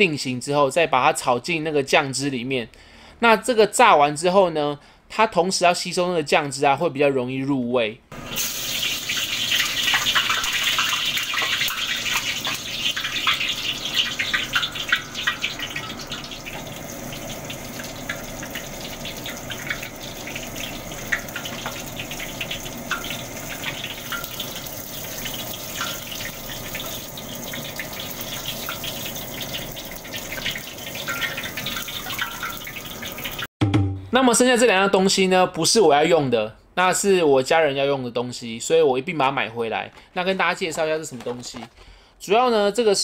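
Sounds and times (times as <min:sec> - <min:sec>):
chicken sizzling in hot oil: 0:08.1 - 0:33.5.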